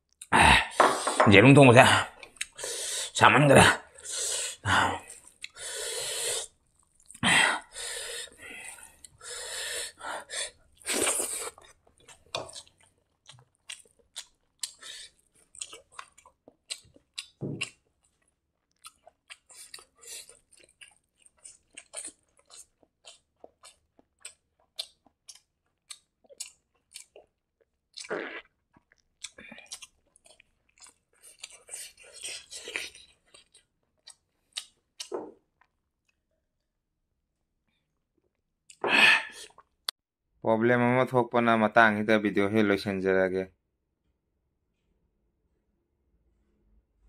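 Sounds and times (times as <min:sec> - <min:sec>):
wet chewing: 0:05.0 - 0:07.2, 0:10.4 - 0:36.2.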